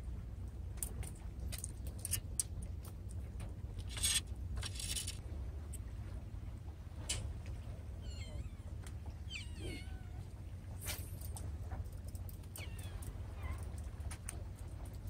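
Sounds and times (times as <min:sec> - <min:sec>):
low steady rumble: 0:00.0 - 0:15.0
fishing tackle clicking and rattling: 0:00.8 - 0:03.2, 0:03.8 - 0:05.2.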